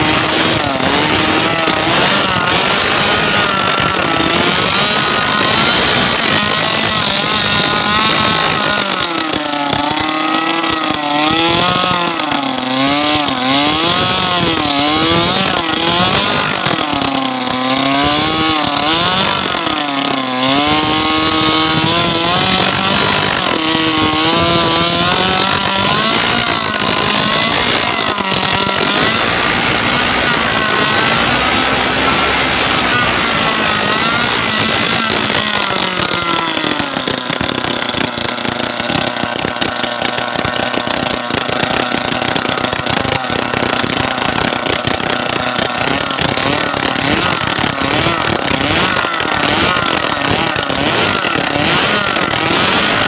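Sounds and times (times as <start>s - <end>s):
small petrol engine revving: 0.0s - 53.0s
propeller churning water: 22.4s - 53.0s.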